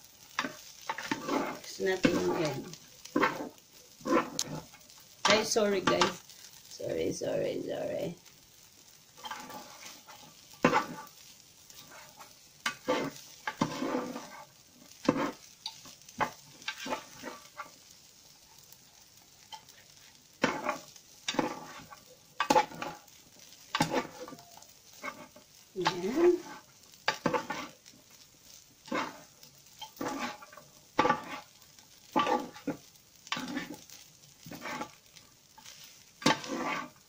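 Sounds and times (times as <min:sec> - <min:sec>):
utensil scraping a frying pan: 0:00.0 - 0:07.2, 0:08.2 - 0:37.0
faint sizzle: 0:00.0 - 0:37.0.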